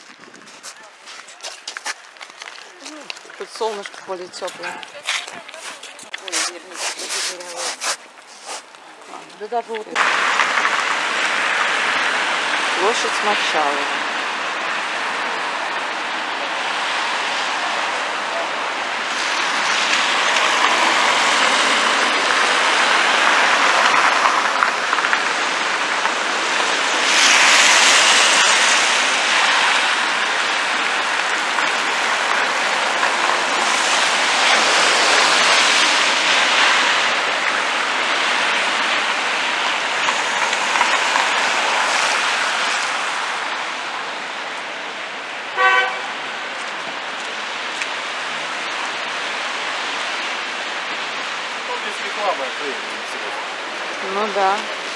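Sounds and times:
tyres hissing on wet road: 0.7 - 54.9
car horn beep: 45.6 - 46.1.

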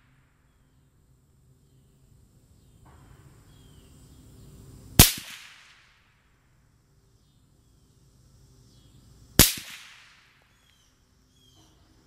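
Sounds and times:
distant rifle shot: 5.0 - 6.1, 9.4 - 10.5.

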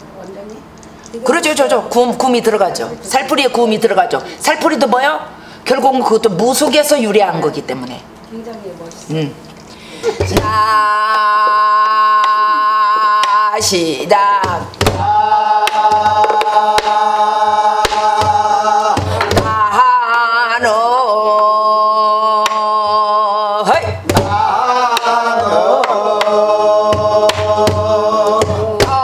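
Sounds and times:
woman singing wordless syllables: 10.2 - 16.5
barrel drum strokes: 14.4 - 19.7.

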